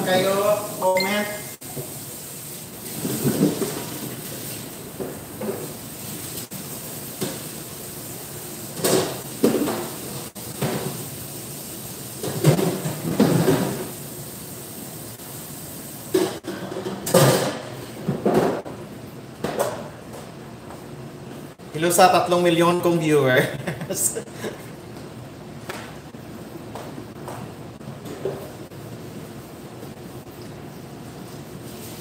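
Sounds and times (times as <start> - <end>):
kitchen clatter and rustling: 2.8 - 7.8, 8.7 - 11.1, 12.2 - 14.0, 16.1 - 18.8, 19.4 - 20.0.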